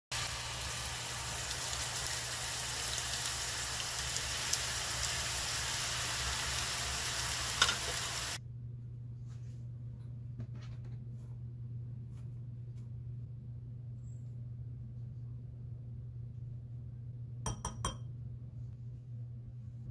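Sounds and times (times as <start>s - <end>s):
oil sizzling in a frying pan: 0.1s - 8.4s
steady low hum: 0.2s - 19.9s.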